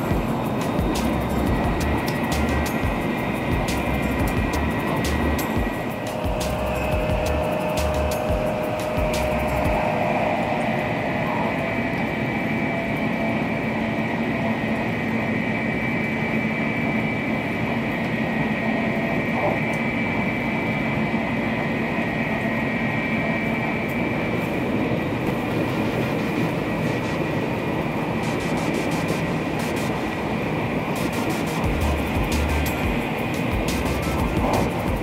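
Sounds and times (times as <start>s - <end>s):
train cabin rumble: 0.0s - 12.4s, 25.0s - 35.0s
high-pitched whine: 0.0s - 35.0s.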